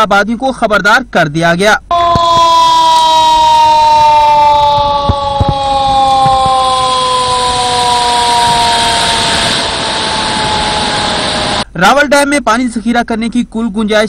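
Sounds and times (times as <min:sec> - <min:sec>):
siren with falling tone: 0:01.9 - 0:11.7.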